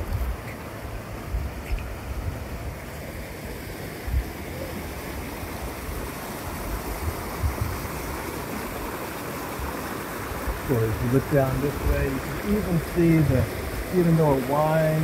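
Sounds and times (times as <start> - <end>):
creek rushing: 0.0 - 15.0
wind buffeting microphone: 4.0 - 8.8, 10.4 - 14.4.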